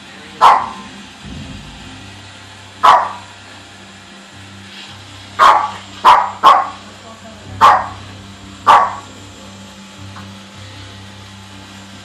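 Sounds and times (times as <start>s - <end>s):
robot vacuum humming: 0.0s - 12.0s
small dog yapping: 2.8s - 3.2s, 5.4s - 6.8s.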